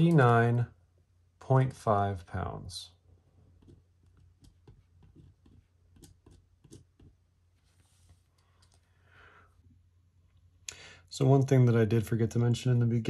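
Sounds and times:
pen writing on paper: 3.6 - 7.2
soft brushing sounds: 3.6 - 8.5.

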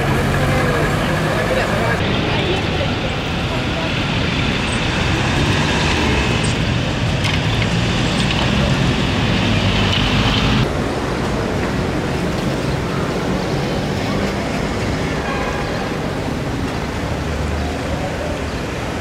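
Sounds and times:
street traffic: 0.0 - 19.0.

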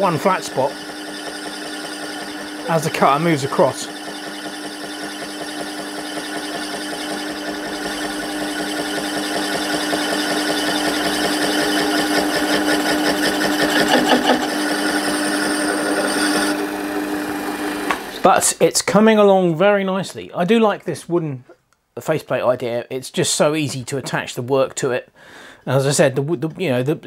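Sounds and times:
lathe tool cutting metal pulsing: 0.0 - 18.3
metal lathe humming: 0.0 - 18.3.

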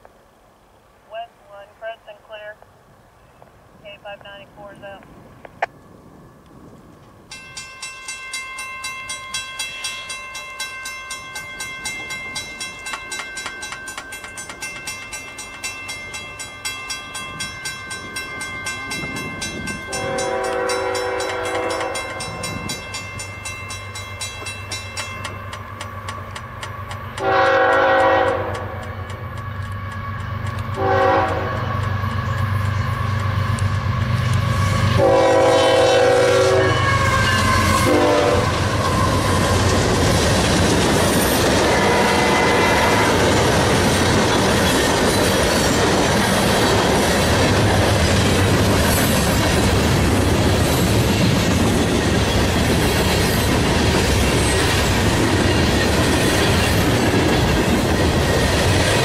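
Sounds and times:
train rumble: 0.0 - 59.0
crossing bell ringing rapidly: 7.3 - 25.8
locomotive horn blasts: 19.9 - 22.6, 27.2 - 28.8, 30.8 - 31.7, 34.6 - 39.4, 41.7 - 43.3.

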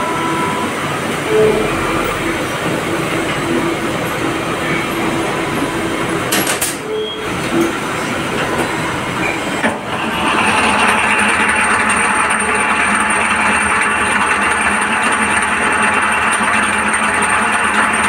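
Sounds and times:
short high beep: 0.0 - 6.0, 6.8 - 7.7
machinery running: 0.0 - 18.0
steady machine whine: 0.0 - 18.0.

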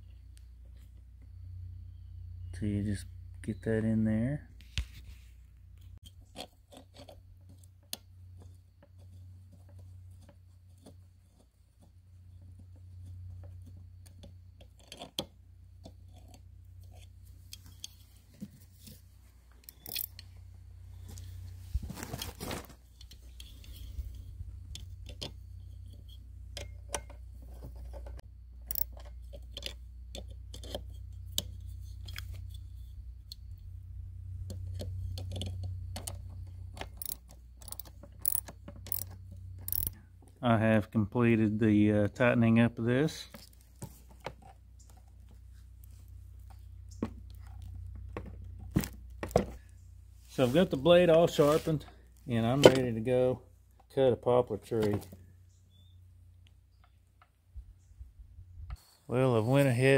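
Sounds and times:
steady low hum: 0.0 - 6.4, 7.2 - 59.9
small metal clicks and clinks: 28.6 - 32.2, 36.8 - 40.0
metal scrape: 50.2 - 51.9.

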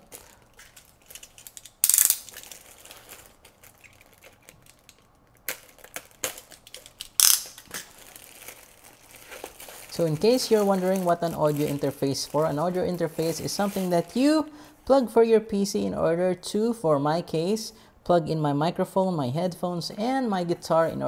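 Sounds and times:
plastic wrap crinkling: 0.0 - 14.5.

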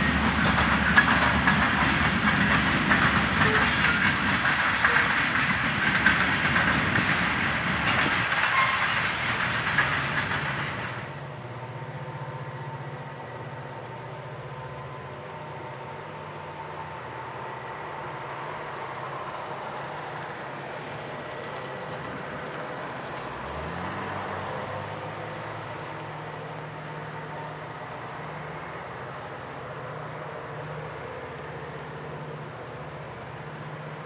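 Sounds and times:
diesel locomotive engines under load: 0.0 - 34.0.

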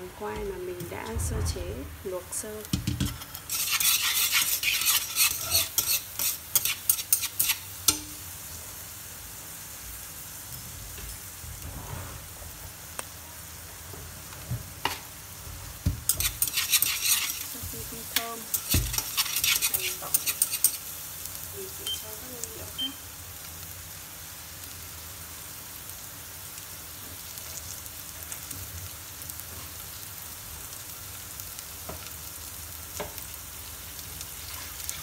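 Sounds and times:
shallots and garlic sizzling: 0.0 - 35.0
chopsticks scraping a pot: 3.0 - 8.0, 16.1 - 20.9.

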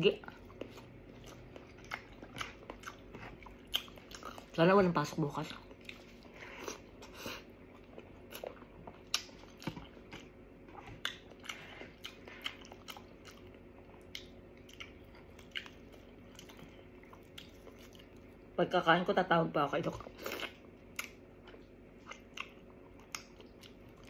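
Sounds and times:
person chewing with mouth smacks: 0.2 - 4.6, 5.6 - 18.3, 20.0 - 24.0.

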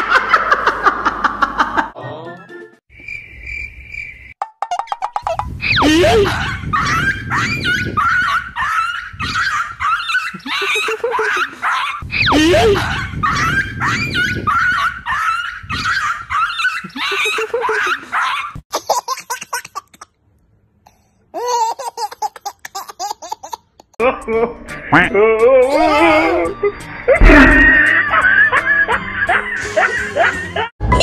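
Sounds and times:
baby laughing: 5.2 - 20.2, 21.3 - 24.0
loud laughing: 5.8 - 18.6, 27.1 - 30.7.

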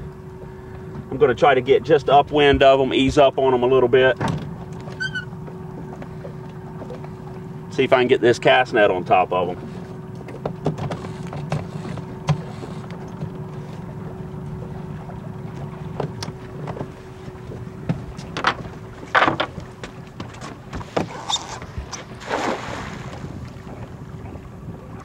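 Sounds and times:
boat motor idling: 0.0 - 22.3, 23.0 - 25.0
knocks on boat: 2.3 - 7.1, 10.2 - 13.4, 15.5 - 22.3
net splashing in water: 22.2 - 23.2.

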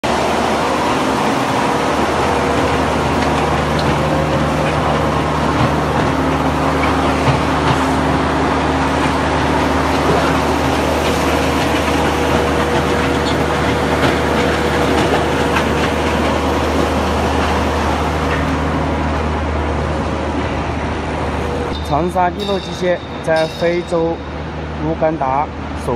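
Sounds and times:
concrete pump engine drone: 0.0 - 25.9.

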